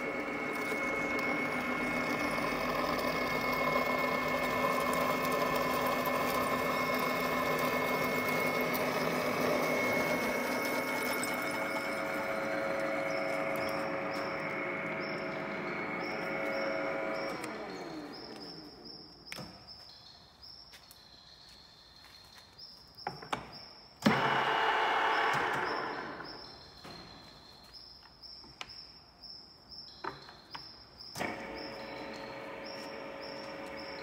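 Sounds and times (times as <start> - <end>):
drilling machine gearbox running: 0.0 - 18.7, 24.0 - 26.5, 31.2 - 34.0.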